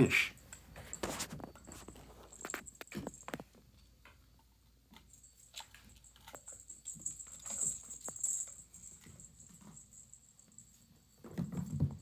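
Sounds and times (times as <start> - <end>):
kittens eating crunching: 0.4 - 9.7.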